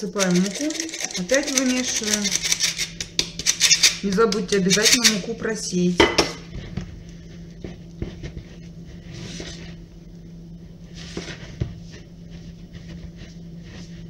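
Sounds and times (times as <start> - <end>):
spoon stirring dough in bowl: 0.0 - 5.2.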